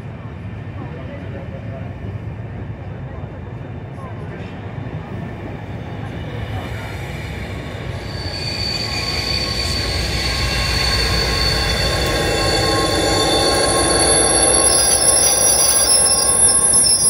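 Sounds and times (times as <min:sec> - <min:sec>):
train wheels squealing: 0:06.2 - 0:17.0.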